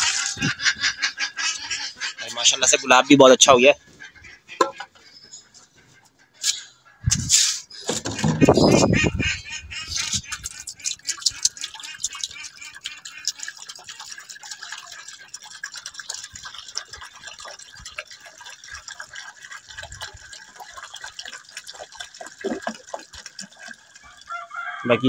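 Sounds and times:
water pouring into a bowl: 0:10.0 - 0:25.0.

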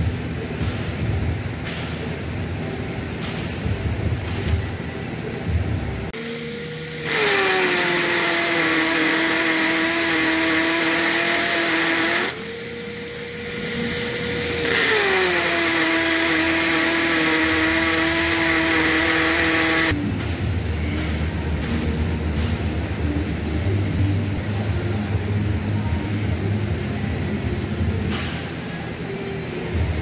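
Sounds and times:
drill drilling into concrete: 0:06.2 - 0:13.2, 0:13.9 - 0:20.0
drill spinning freely: 0:06.2 - 0:20.0.

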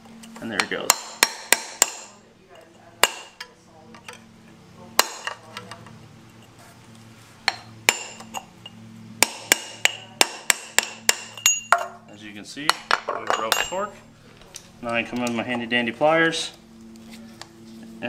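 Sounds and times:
hammer striking steel punch: 0:00.6 - 0:02.2, 0:03.0 - 0:03.4, 0:07.5 - 0:08.4, 0:09.2 - 0:12.0.

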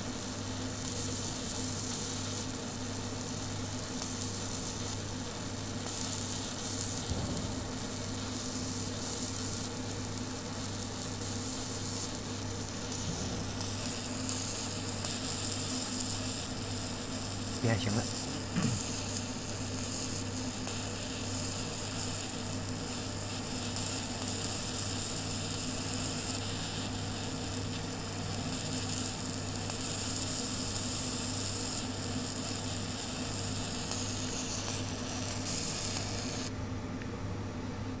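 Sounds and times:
laser sizzling hiss: 0:00.0 - 0:36.5
low machine hum: 0:07.0 - 0:11.1, 0:12.2 - 0:19.5.

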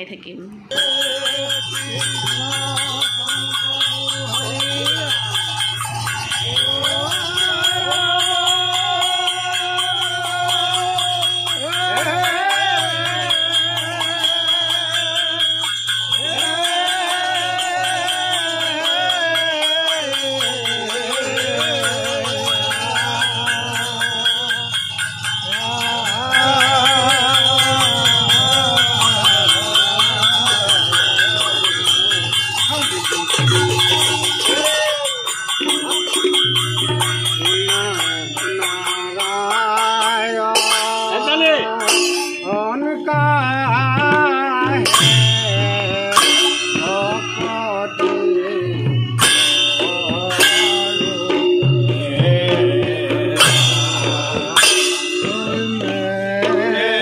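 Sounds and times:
hand cymbals ringing: 0:00.7 - 0:57.0
hand drums playing: 0:00.7 - 0:57.0
men singing a chant: 0:00.7 - 0:57.0.

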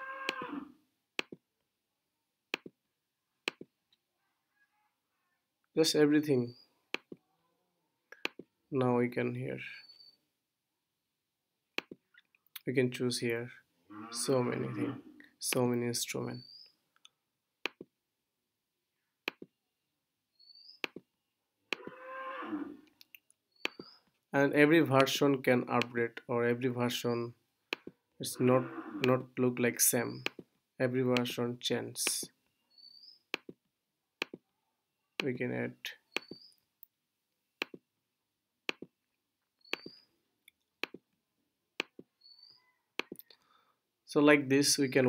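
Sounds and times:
mouse button clicks: 0:20.8 - 0:21.0, 0:23.1 - 0:24.0, 0:36.1 - 0:36.5, 0:39.6 - 0:40.0, 0:43.0 - 0:43.2
computer mouse clicks: 0:23.0 - 0:24.0, 0:39.6 - 0:41.0, 0:43.0 - 0:43.3.

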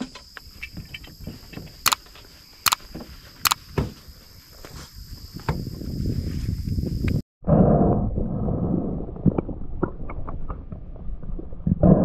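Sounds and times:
sharp clicks: 0:01.8 - 0:03.6.

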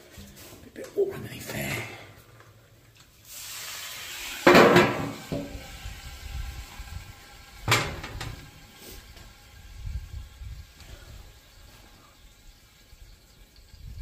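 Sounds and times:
water hissing on hot griddle: 0:03.0 - 0:14.0.

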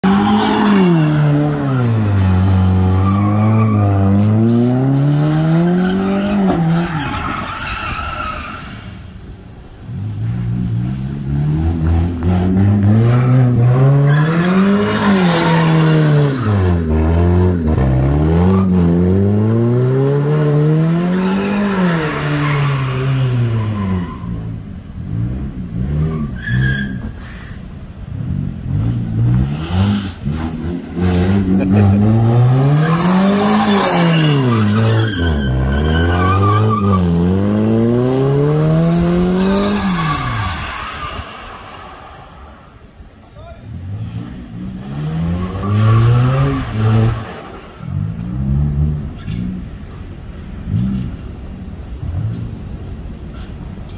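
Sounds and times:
car engine revving: 0:00.0 - 0:07.0, 0:08.7 - 0:22.3, 0:28.1 - 0:43.1.

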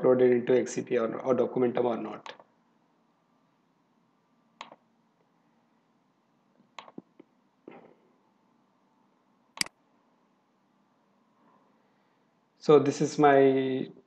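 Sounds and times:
computer mouse clicks: 0:04.6 - 0:04.8, 0:06.7 - 0:07.3.

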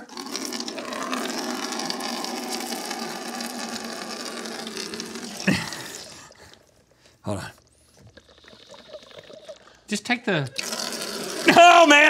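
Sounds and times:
water pouring into container: 0:00.0 - 0:06.7, 0:08.0 - 0:09.8, 0:10.6 - 0:11.7.

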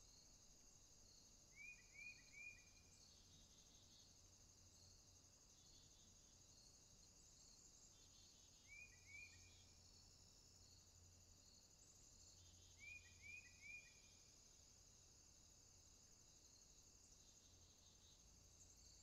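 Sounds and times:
insects chirring: 0:00.0 - 0:19.0
small bird chirping: 0:01.5 - 0:04.2, 0:07.5 - 0:09.8, 0:11.8 - 0:14.2.

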